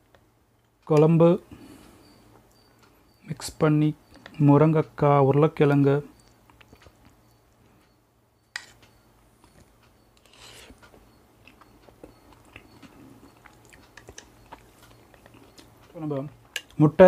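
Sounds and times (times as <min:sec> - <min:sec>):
food mixing ticks on plate: 0:05.7 - 0:07.5, 0:08.5 - 0:16.8
soft chewing: 0:06.2 - 0:08.0, 0:08.7 - 0:16.8.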